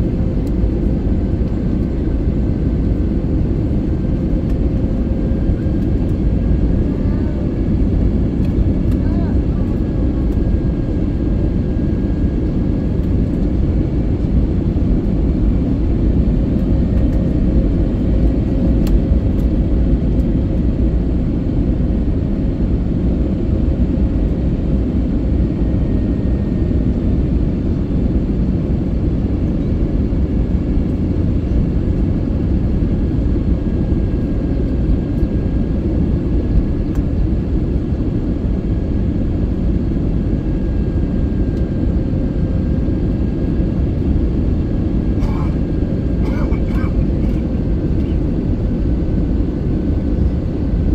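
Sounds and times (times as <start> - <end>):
airplane cabin rumble: 0.0 - 50.9.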